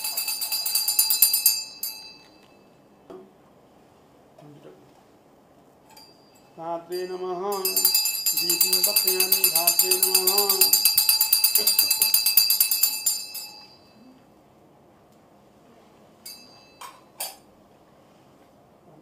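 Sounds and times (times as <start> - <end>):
small hand bell ringing rapidly: 0.0 - 2.3, 6.0 - 14.0
person chanting: 6.6 - 10.9.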